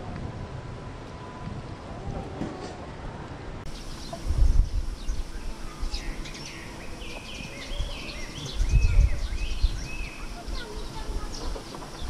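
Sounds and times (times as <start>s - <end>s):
outdoor background noise: 0.0s - 12.0s
small birds chirping and singing: 3.7s - 12.0s.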